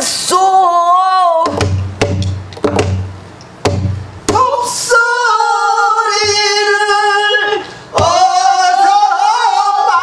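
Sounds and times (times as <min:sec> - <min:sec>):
barrel drum struck with stick: 0:01.4 - 0:04.5.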